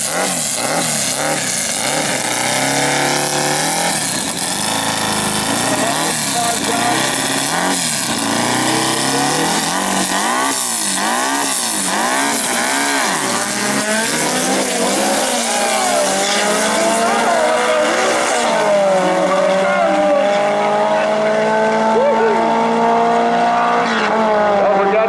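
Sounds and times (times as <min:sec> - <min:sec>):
cars accelerating through gears: 0:00.0 - 0:25.0
drag car engines revving: 0:00.0 - 0:25.0.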